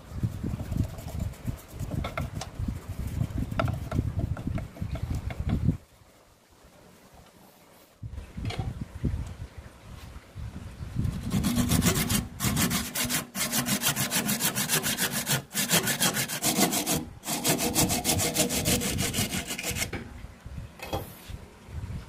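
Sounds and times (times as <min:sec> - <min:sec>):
hand saw cutting wood: 0:11.1 - 0:20.0.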